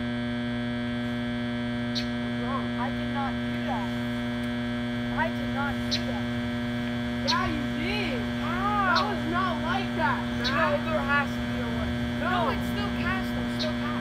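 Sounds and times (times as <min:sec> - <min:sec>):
electrical hum: 0:00.0 - 0:14.0
short rising and falling chirps: 0:05.6 - 0:14.0.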